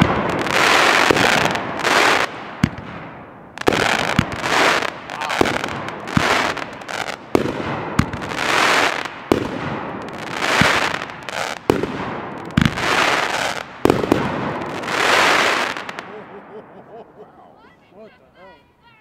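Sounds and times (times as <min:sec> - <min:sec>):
fireworks shots: 0:00.0 - 0:17.2
fireworks crackling: 0:00.0 - 0:19.0.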